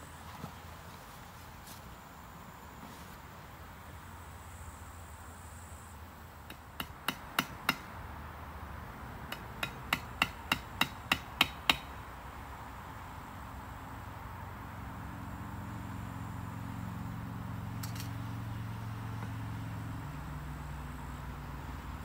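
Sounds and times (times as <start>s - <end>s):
hammer striking rivets: 6.5s - 7.9s, 9.3s - 11.9s.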